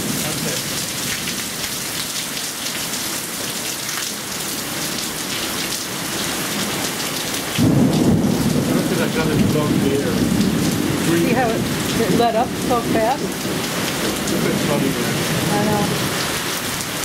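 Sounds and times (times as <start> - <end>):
heavy rain downpour: 0.0 - 17.0
thunder rumbling: 7.6 - 16.2.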